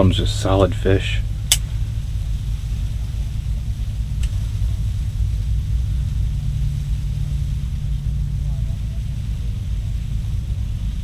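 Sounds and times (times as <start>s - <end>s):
steady low rumble: 0.0s - 11.0s
sharp click: 1.5s - 1.7s.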